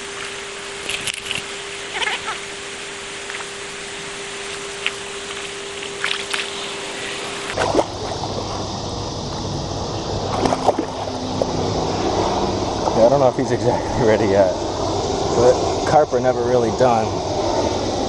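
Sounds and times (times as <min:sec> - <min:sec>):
sharp water splashes: 0:00.0 - 0:08.3, 0:10.2 - 0:11.9
fish thrashing in shallow water: 0:00.0 - 0:08.7, 0:10.2 - 0:11.6
steady watery hiss: 0:00.0 - 0:18.0.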